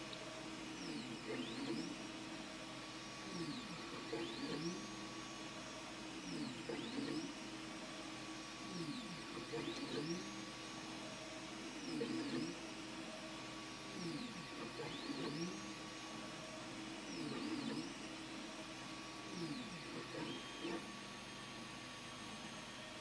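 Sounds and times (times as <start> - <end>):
fans humming: 0.0 - 23.0
stepper motors whining: 3.2 - 7.4.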